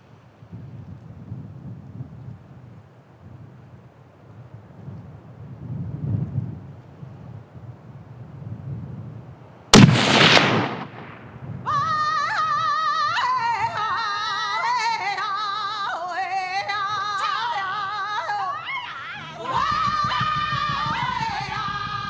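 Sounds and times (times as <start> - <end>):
rifle shot echoing: 9.7 - 11.5
music with wavering singing voice: 12.1 - 22.0.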